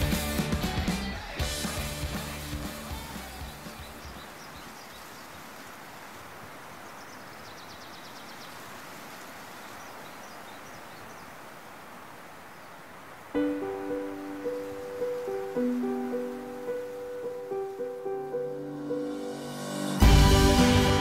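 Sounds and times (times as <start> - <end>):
outdoor background noise: 0.0 - 21.0
faint bird chirps: 6.8 - 8.7.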